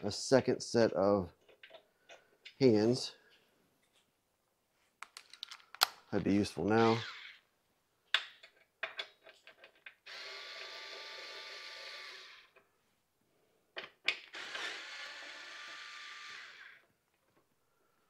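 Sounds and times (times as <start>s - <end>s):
electric screwdriver running: 10.1s - 12.5s, 14.3s - 16.8s.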